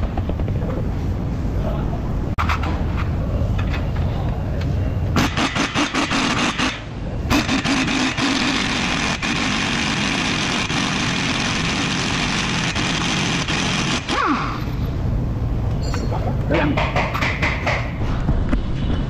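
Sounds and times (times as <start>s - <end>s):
impact wrench hammering: 5.2s - 8.6s, 16.7s - 18.0s.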